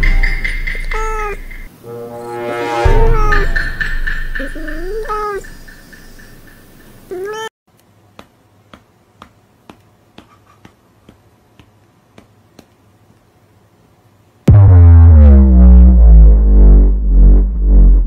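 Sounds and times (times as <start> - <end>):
cat meowing: 0.9 - 1.4, 2.9 - 3.6, 4.8 - 5.4, 7.1 - 7.5.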